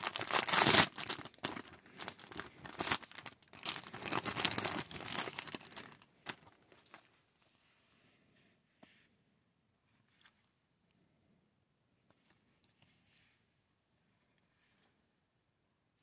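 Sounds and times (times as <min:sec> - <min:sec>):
plastic bag crinkling: 0:00.0 - 0:06.5.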